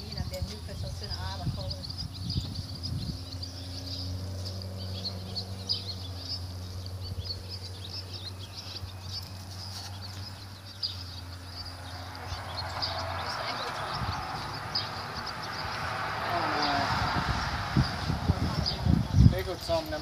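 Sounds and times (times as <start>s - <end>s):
small birds chirping: 0.0s - 20.0s.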